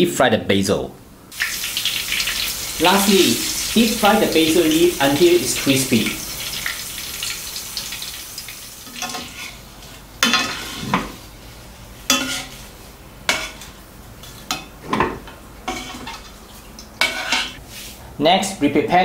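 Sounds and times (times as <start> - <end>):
light sizzle of frying: 1.3 - 18.1
metal utensils clinking on pan: 8.9 - 9.6, 10.2 - 10.8, 12.1 - 12.6, 17.0 - 17.6.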